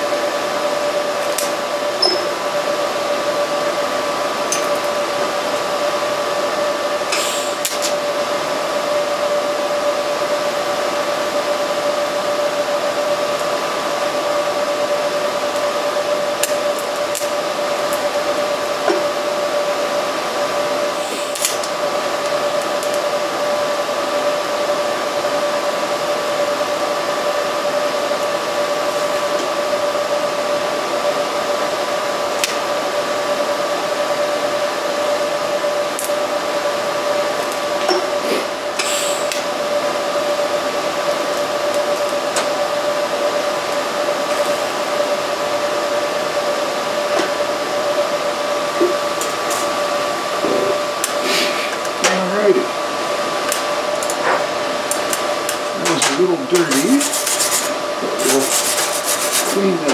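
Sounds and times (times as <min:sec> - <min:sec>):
high hum: 0:00.0 - 0:59.9
welding arc hissing: 0:00.0 - 0:59.9.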